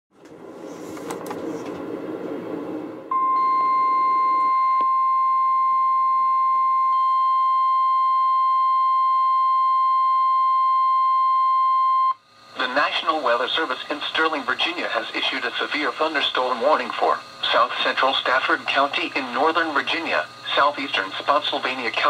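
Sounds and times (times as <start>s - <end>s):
radio hiss: 12.4s - 22.0s.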